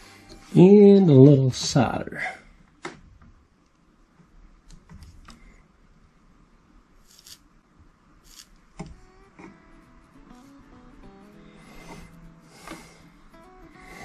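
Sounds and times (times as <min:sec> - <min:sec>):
faint background music: 0:00.0 - 0:02.3, 0:08.2 - 0:14.0.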